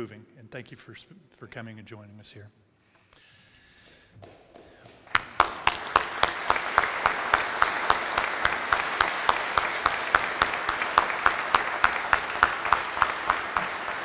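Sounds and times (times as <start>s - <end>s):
close loud hand clapping: 4.2s - 14.0s
crowd applause: 5.1s - 14.0s.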